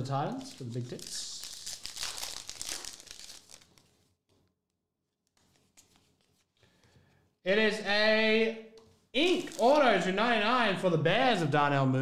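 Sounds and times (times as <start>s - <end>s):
foil wrapper crinkling and tearing: 0.3s - 4.1s, 9.2s - 10.0s.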